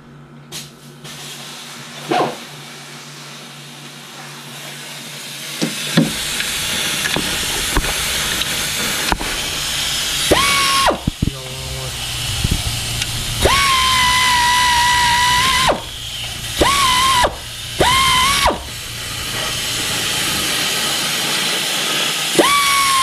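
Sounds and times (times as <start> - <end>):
hiss: 0.5 - 23.0
power tool motor whining: 6.0 - 21.6, 22.3 - 23.0.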